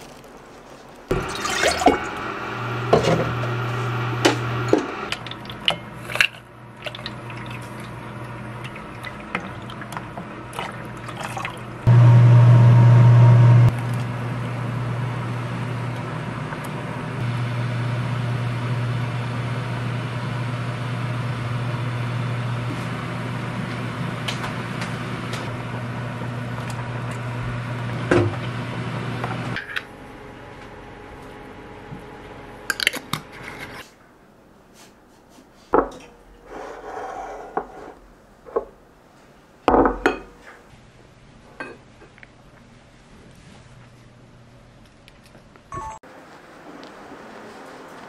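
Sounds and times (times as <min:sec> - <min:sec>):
steady low hum: 0:11.8 - 0:32.8.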